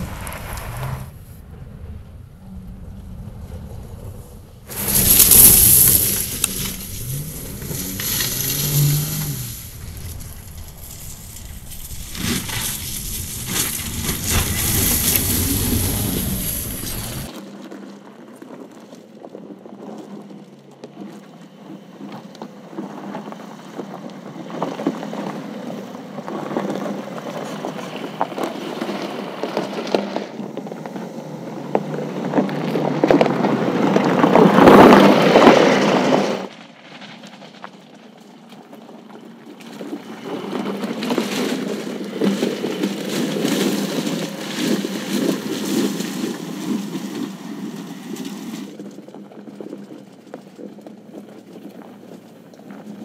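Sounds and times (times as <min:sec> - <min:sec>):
car engine running: 0:02.4 - 0:17.3
tyres crunching on gravel: 0:04.7 - 0:53.0.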